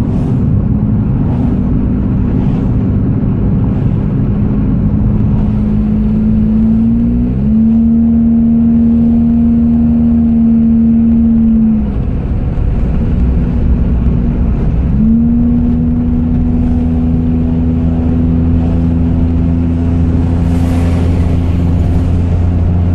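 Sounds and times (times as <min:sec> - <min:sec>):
car engine drone: 0:00.0 - 0:22.9
road noise: 0:00.0 - 0:22.9.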